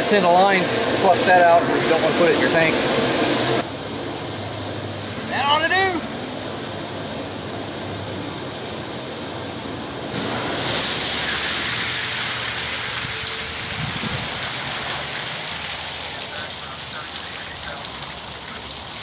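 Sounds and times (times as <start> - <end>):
water rushing into tank: 10.2 - 19.0.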